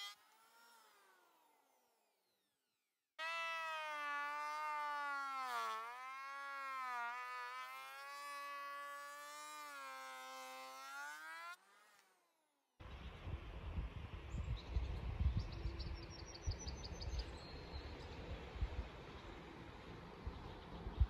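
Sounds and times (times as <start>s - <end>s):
planer blades biting into wood: 0.0s - 1.8s, 3.2s - 12.3s
electric hand planer motor whine: 0.0s - 2.1s, 3.2s - 12.2s.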